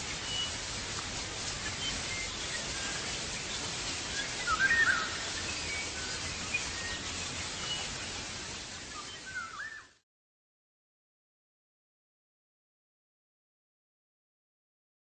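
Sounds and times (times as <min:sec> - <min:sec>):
birds chirping: 0:00.0 - 0:10.0
steady outdoor hiss: 0:00.0 - 0:10.0.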